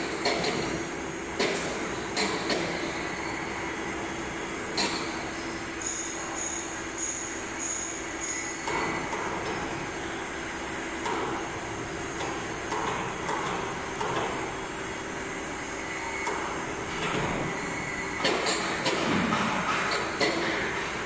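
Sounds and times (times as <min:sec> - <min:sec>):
steady machine hum: 0:00.0 - 0:21.0.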